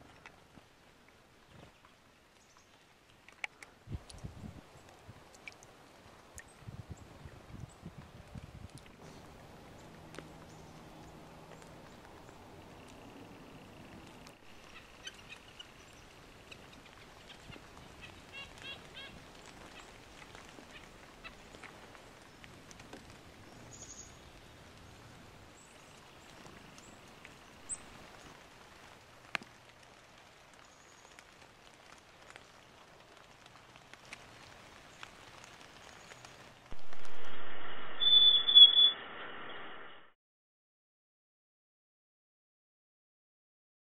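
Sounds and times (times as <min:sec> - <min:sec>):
bird chirps: 0:37.0 - 0:39.7.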